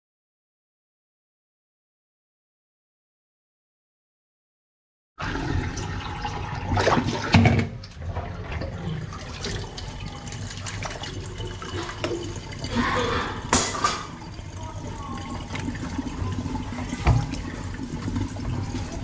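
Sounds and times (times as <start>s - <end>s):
water splashing in steel sink: 5.2s - 19.0s
knocks in sink: 17.0s - 17.4s.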